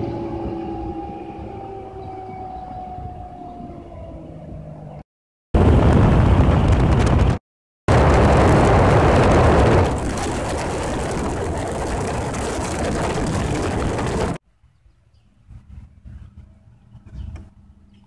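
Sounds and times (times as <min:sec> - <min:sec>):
water noise: 0:00.0 - 0:04.4, 0:05.6 - 0:14.4
wind rush on microphone: 0:00.0 - 0:04.9, 0:05.6 - 0:14.4
boat engine: 0:00.0 - 0:05.0, 0:07.9 - 0:14.4.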